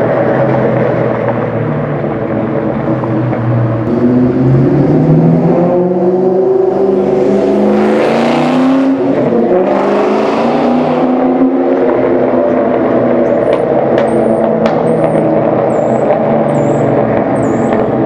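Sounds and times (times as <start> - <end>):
car engine accelerating past: 3.8 - 13.2.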